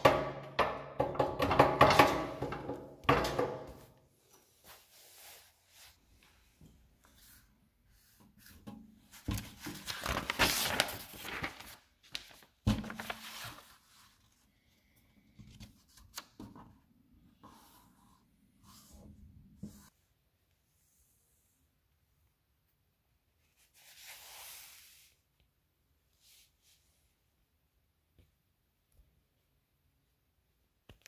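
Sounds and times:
paper pages rustling: 0:09.1 - 0:14.4.

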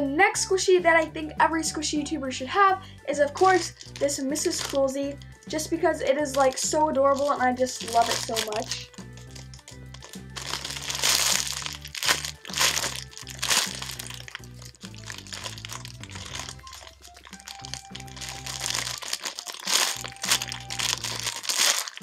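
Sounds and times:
background music with bass line: 0:00.0 - 0:21.5
plastic wrapping crinkling: 0:03.3 - 0:05.5, 0:06.3 - 0:22.0.

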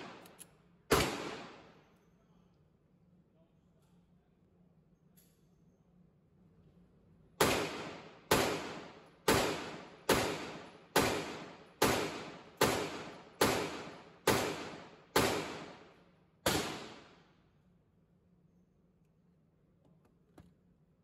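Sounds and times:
pistol shots echoing indoors: 0:00.0 - 0:02.0, 0:07.3 - 0:17.5.

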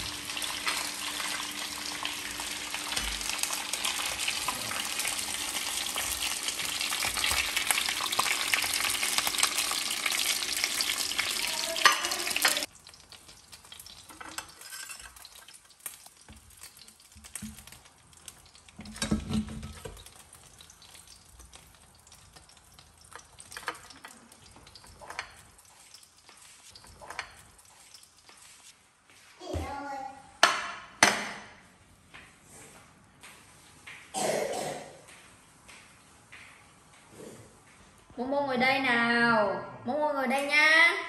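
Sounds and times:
fish sizzling in oil: 0:00.0 - 0:28.8
utensils clicking on pan: 0:02.9 - 0:28.4.

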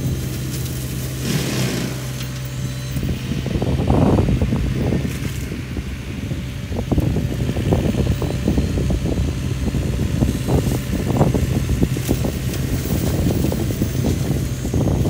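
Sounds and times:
mulcher crackling snaps shredding brush: 0:00.0 - 0:02.6, 0:04.5 - 0:05.8, 0:10.0 - 0:15.0
excavator diesel engine running: 0:00.0 - 0:15.0.

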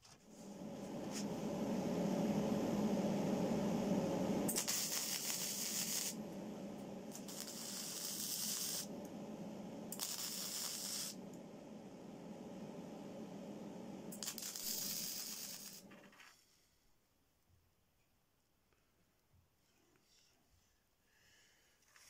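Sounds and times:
steady low hum: 0:00.0 - 0:16.1
electric arc welding crackling hiss: 0:04.1 - 0:09.1, 0:09.7 - 0:11.4, 0:14.1 - 0:16.1.

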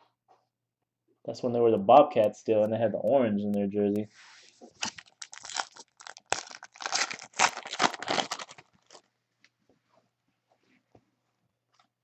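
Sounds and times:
plastic wrapper crinkling: 0:04.8 - 0:09.1.

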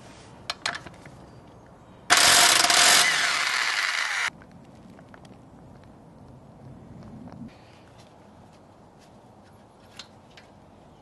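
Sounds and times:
impact wrench running: 0:02.1 - 0:04.3.

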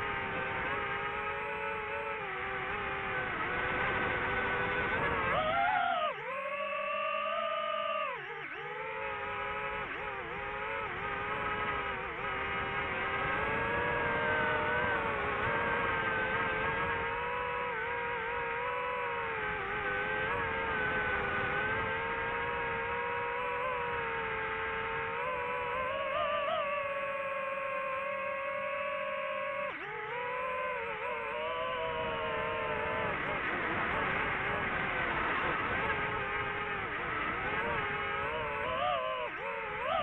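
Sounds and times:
drone motors and propellers whining: 0:00.0 - 0:40.0.

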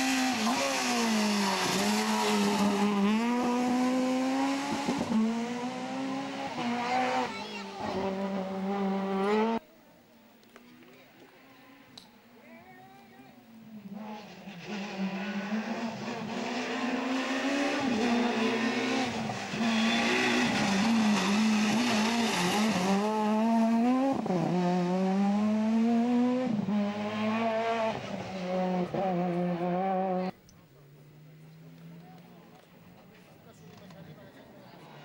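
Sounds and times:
rally car engine revving: 0:00.0 - 0:09.6, 0:13.8 - 0:30.4.

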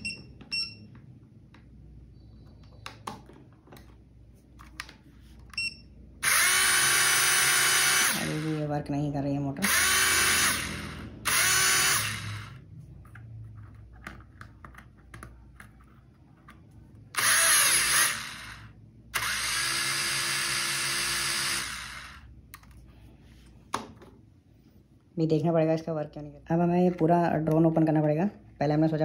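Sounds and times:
toy drone motors whirring: 0:06.2 - 0:08.6, 0:09.6 - 0:12.6, 0:17.2 - 0:22.3.

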